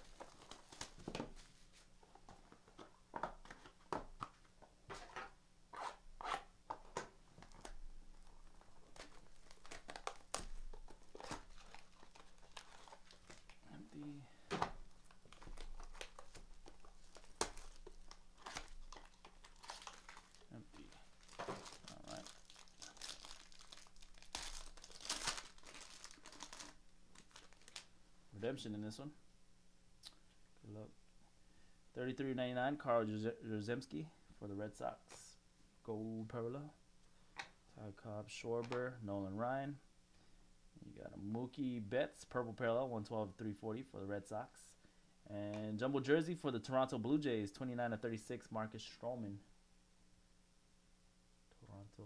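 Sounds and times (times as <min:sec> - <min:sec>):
plastic wrapper crinkling and tearing: 0:07.4 - 0:13.8, 0:14.9 - 0:27.9.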